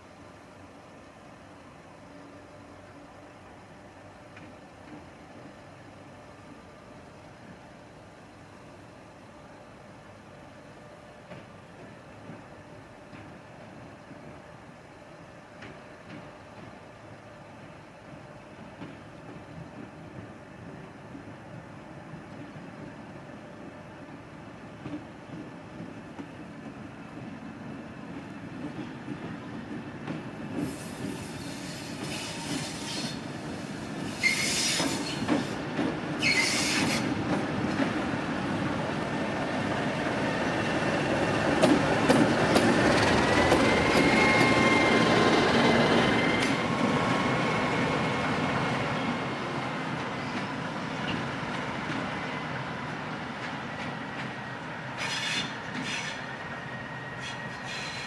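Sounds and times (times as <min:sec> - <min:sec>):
short air hisses: 0:30.6 - 0:35.6, 0:55.0 - 0:56.3, 0:57.2 - 0:58.0
high wheel squeal: 0:34.1 - 0:35.4, 0:36.2 - 0:37.1, 0:55.0 - 0:58.0
wheels clattering on rails: 0:39.3 - 0:46.9.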